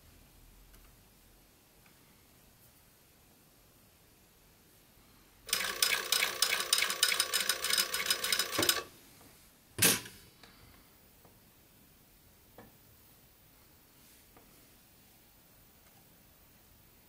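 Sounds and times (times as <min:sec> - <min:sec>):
sewing machine rattling: 0:05.5 - 0:08.9.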